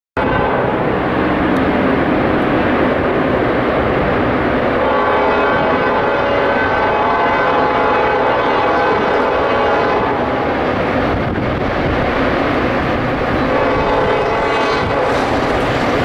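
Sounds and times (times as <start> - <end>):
locomotive horn: 0.2 - 0.8, 4.8 - 10.5, 13.4 - 15.7
diesel locomotive engines: 0.2 - 16.0.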